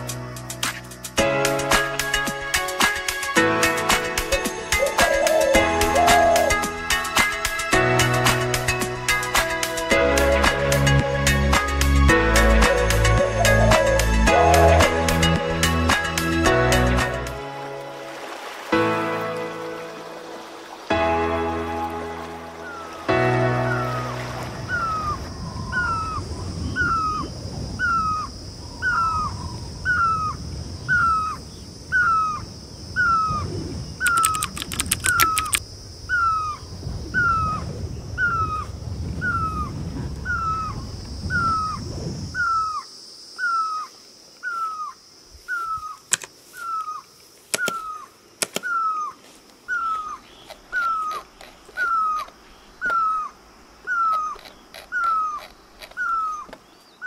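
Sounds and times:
bird calling: 4.3s - 7.2s, 12.4s - 15.4s, 22.5s - 32.4s, 33.0s - 36.6s, 38.2s - 41.8s, 42.4s - 57.0s.

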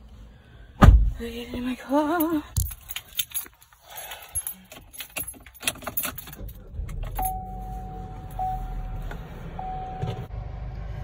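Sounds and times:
car keys jangling: 2.0s - 7.6s
car engine starting and rumbling: 4.7s - 11.0s.

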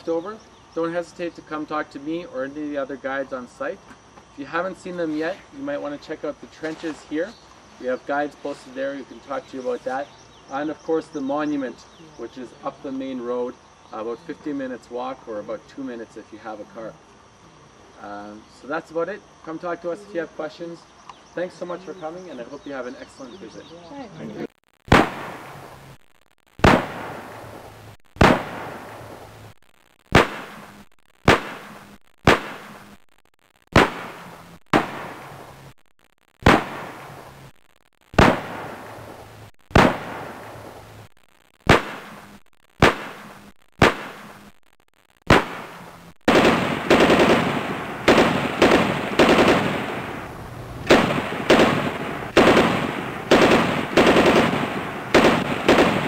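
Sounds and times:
gunshots: 24.9s - 25.8s, 26.6s - 29.5s, 30.1s - 33.0s, 33.7s - 35.7s, 36.4s - 37.5s, 38.1s - 44.6s, 45.3s - 56.0s
machine-gun bursts: 45.3s - 50.0s, 50.9s - 56.0s.

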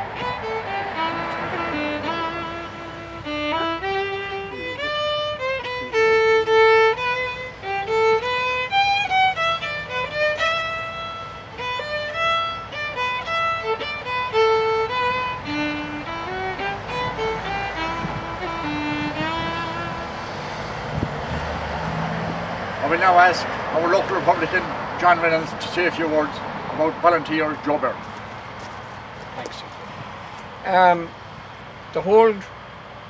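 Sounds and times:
solo instrumental melody: 0.0s - 26.0s.

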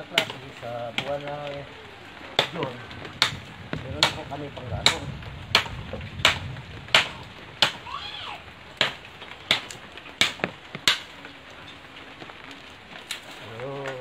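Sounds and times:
blade chopping firewood: 0.0s - 1.6s, 2.3s - 8.0s, 8.8s - 11.4s.

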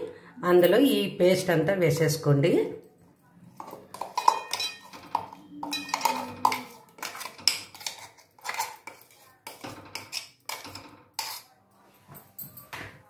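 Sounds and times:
spoon scraping and knocking steel jar: 3.6s - 11.6s.

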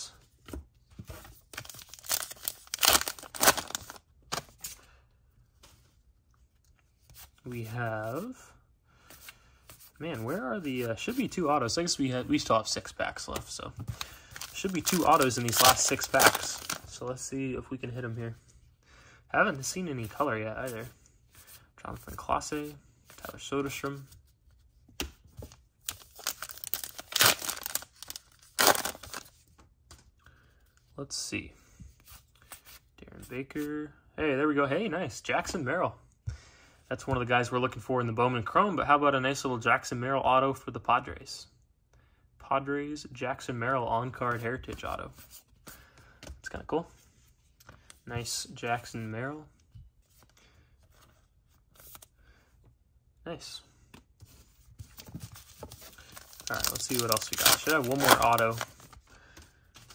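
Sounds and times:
foil wrapper tearing and crinkling: 1.7s - 4.0s, 26.2s - 29.2s, 56.0s - 58.6s.

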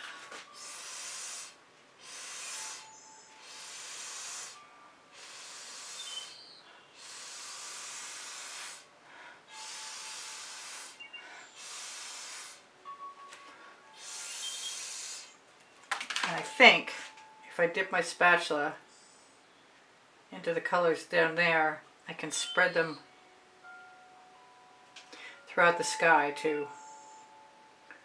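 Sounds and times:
breath blown through a straw: 0.0s - 6.4s, 7.0s - 8.9s, 9.5s - 12.7s, 13.9s - 15.4s.

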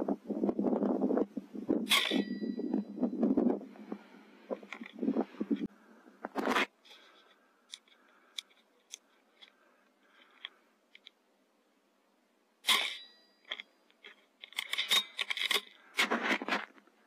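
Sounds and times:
brief ringing tone: 1.9s - 3.0s.

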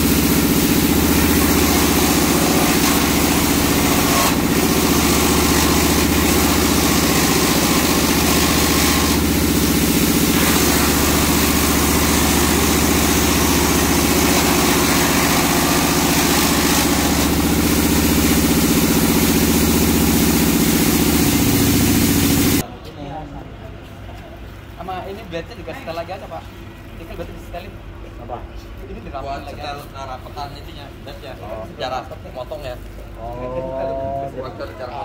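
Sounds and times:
rush of wood chips: 0.0s - 22.6s
wood chipper diesel engine: 0.0s - 22.6s.

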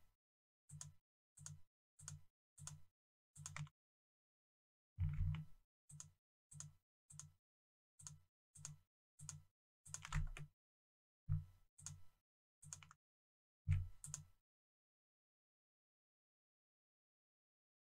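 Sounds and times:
computer mouse clicking: 0.7s - 2.8s, 3.4s - 3.7s, 5.2s - 7.4s, 8.0s - 10.5s, 12.6s - 13.0s, 13.7s - 14.3s.

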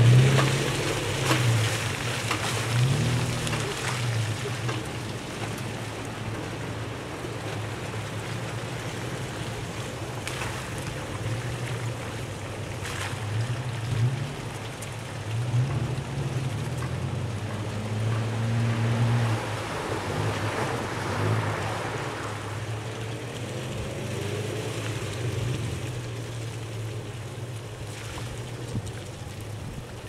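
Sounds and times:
engines running: 0.0s - 10.1s.

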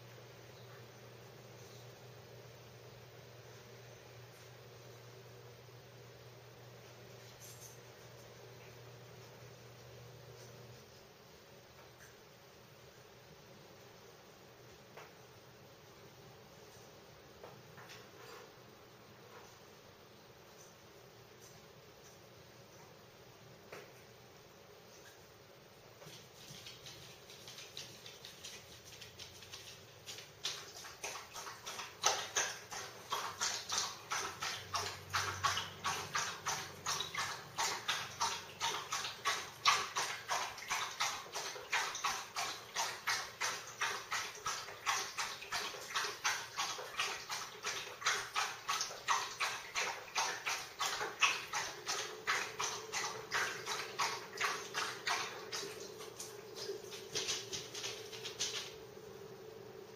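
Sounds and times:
faint steady hum: 0.0s - 59.9s
dog clicking and tapping: 26.0s - 58.8s.

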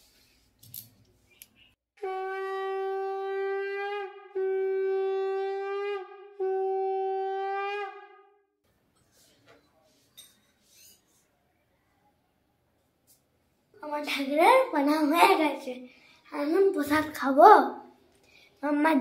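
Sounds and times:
conch shell blasts: 2.0s - 8.4s.

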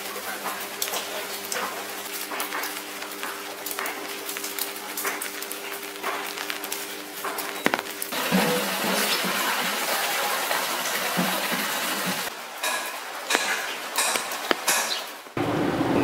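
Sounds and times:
rain dripping on paving: 0.0s - 8.3s, 12.2s - 15.6s.

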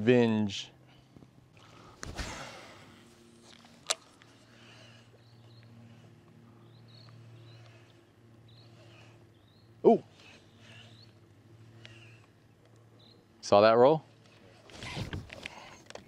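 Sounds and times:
electric trolling motor humming: 1.5s - 13.4s.

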